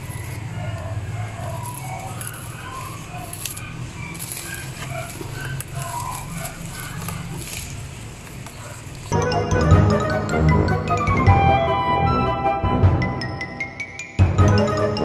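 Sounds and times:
music: 0:09.1 - 0:15.0.

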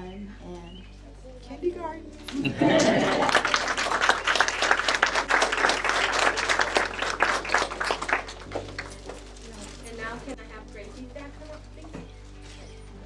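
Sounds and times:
audience applauding: 0:02.3 - 0:09.3.

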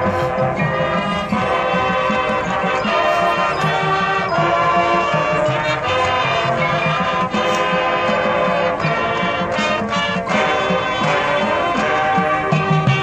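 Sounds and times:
low drum beats: 0:00.0 - 0:09.2
brass chords: 0:00.0 - 0:13.0.

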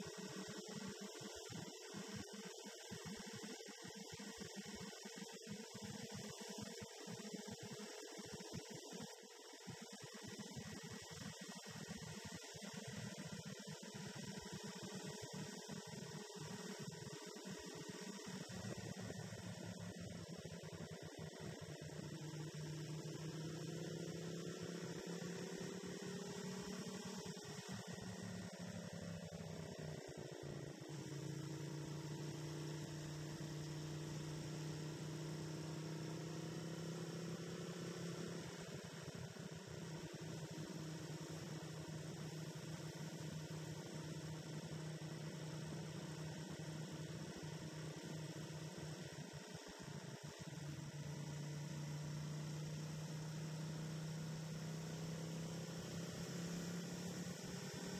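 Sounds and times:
motorcycle engine cruising: 0:18.6 - 0:57.9.

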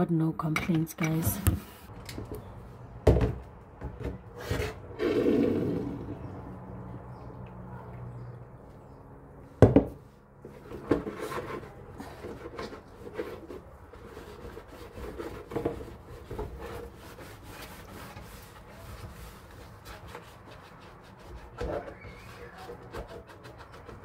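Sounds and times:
sponge scrubbing plastic tray: 0:10.9 - 0:24.0.

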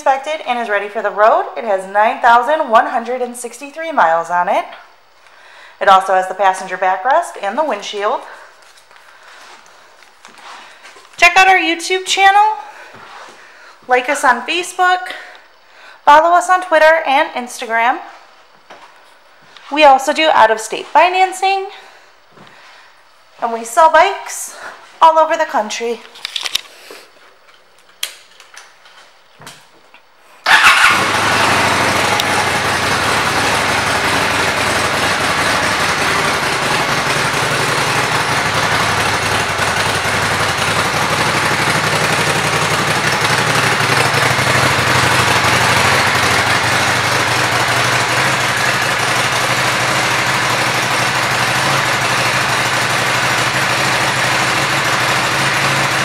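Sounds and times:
motorcycle engine starting and idling: 0:30.4 - 0:56.0.

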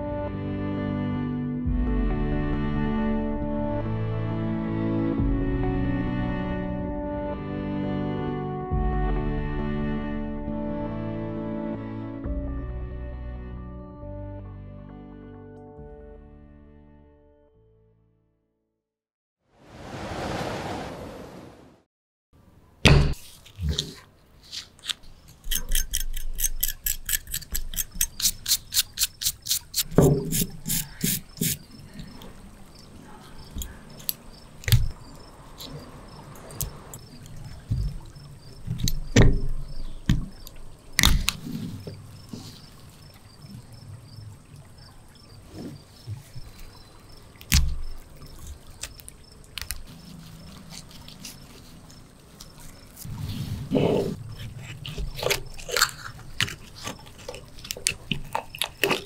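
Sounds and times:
metal parts clicking and snapping: 0:24.8 - 0:30.8.

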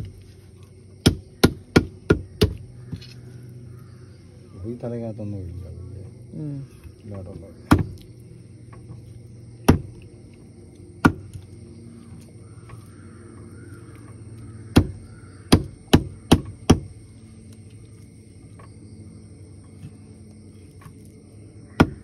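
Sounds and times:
knife chopping on wooden block: 0:01.0 - 0:02.6.

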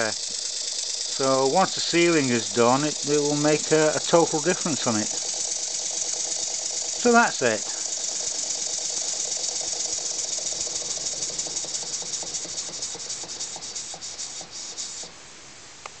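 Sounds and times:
model engine exhaust chuffing: 0:00.0 - 0:15.2
air hissing from joints: 0:11.4 - 0:15.1.

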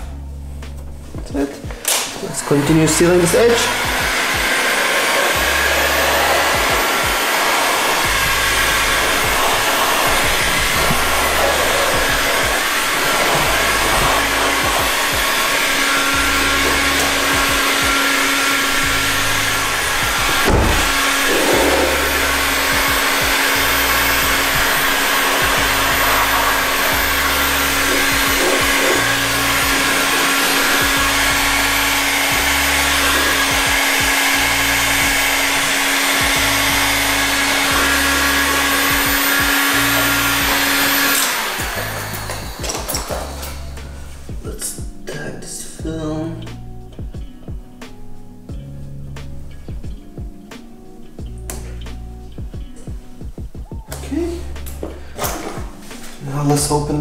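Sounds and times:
background music with repeating bass: 0:00.0 - 0:01.9, 0:02.6 - 0:04.7, 0:05.4 - 0:45.2, 0:45.8 - 0:57.0
heat gun blowing: 0:01.6 - 0:44.4, 0:54.6 - 0:56.5.

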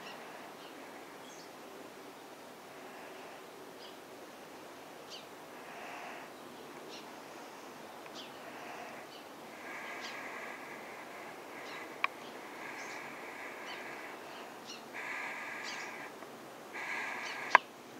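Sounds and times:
distant birds chirping: 0:00.0 - 0:17.9.

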